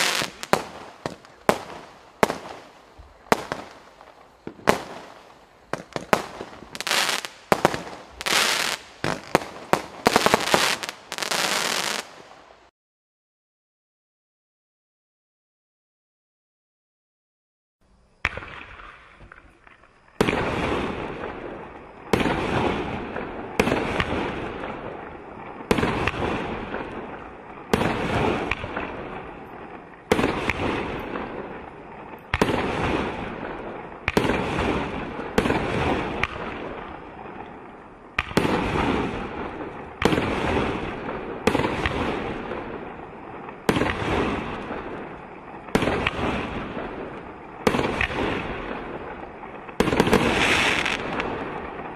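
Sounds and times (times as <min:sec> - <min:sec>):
sharp firework bangs: 0:00.0 - 0:02.7, 0:04.4 - 0:12.1, 0:22.1 - 0:29.4, 0:32.3 - 0:36.9, 0:38.1 - 0:49.1, 0:49.7 - 0:51.9
firework fizzing: 0:00.0 - 0:12.5, 0:22.2 - 0:51.9.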